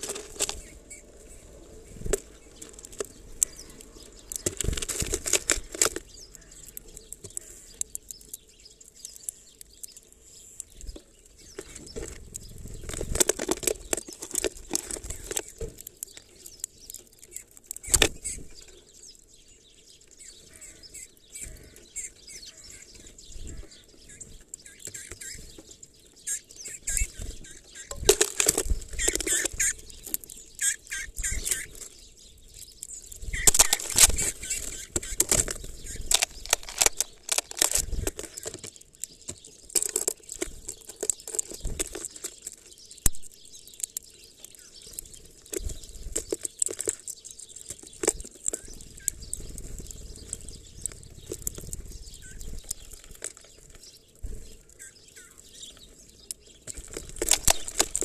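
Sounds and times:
birds fluttering wings: 0.0 - 7.7, 10.8 - 15.8, 21.4 - 32.0, 33.1 - 42.8, 44.7 - 58.0
seeds rustling: 0.0 - 58.0.

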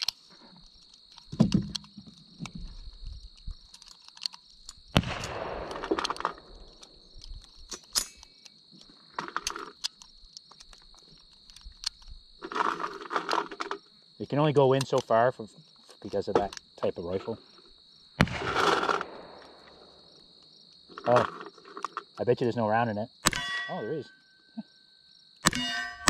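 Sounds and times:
gear being handled clicks: 0.0 - 13.8.

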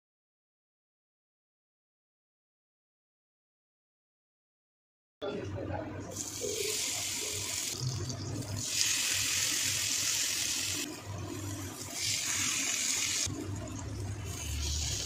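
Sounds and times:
food sizzling in hot oil: 6.2 - 15.0.

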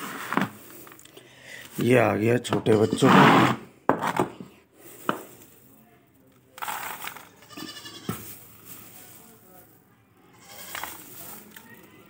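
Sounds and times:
goat bleating: 2.7 - 3.2, 7.4 - 8.1, 10.3 - 10.9.

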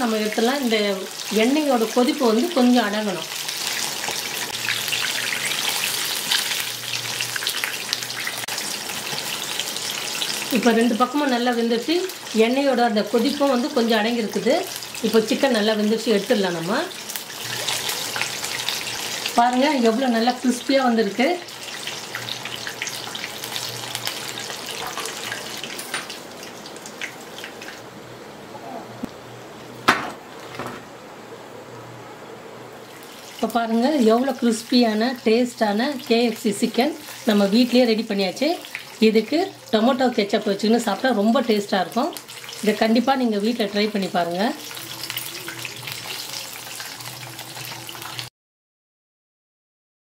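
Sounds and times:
chicken deep-frying in oil: 0.0 - 27.9, 32.8 - 48.3.

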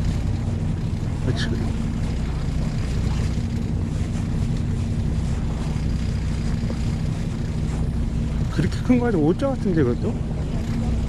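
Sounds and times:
boat engine humming: 0.0 - 11.0
water noise: 0.0 - 11.0
wind: 0.0 - 11.0.

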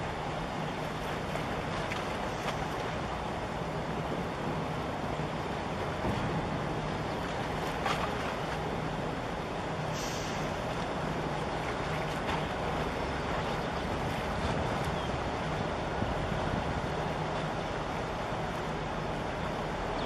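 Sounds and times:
low engine hum: 0.0 - 20.0
water noise: 0.0 - 20.0
wind on microphone: 13.2 - 17.8.

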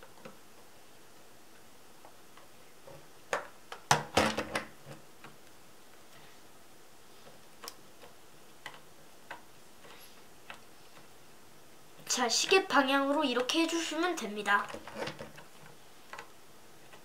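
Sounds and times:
plastic clatter: 14.6 - 16.3.

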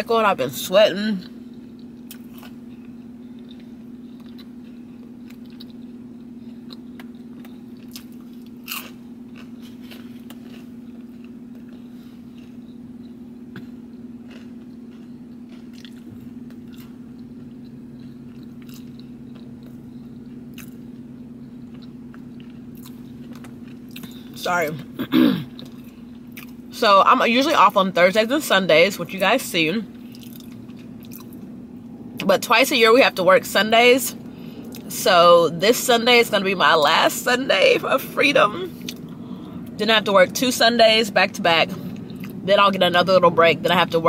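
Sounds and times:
low hum: 0.0 - 44.0
person chewing and crunching food: 1.5 - 26.7, 29.9 - 32.3, 34.2 - 34.9, 38.7 - 39.8, 41.7 - 42.4.

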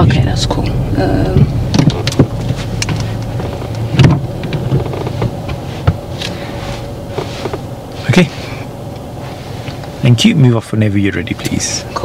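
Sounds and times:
car engine hum: 0.0 - 12.0.

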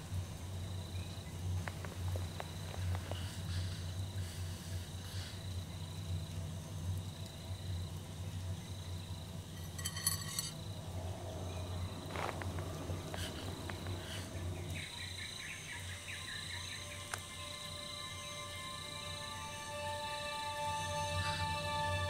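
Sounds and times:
insects chirping: 0.0 - 22.0
low steady hum: 0.0 - 22.0
insect buzzing trill: 13.3 - 22.0.

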